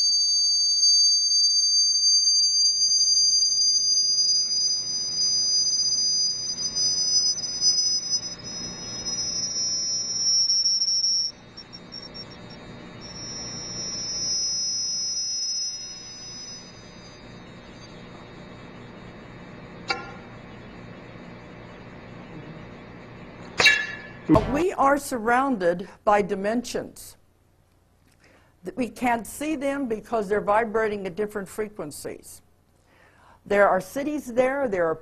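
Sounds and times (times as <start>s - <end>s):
shrill high-pitched tones: 0.0s - 17.8s.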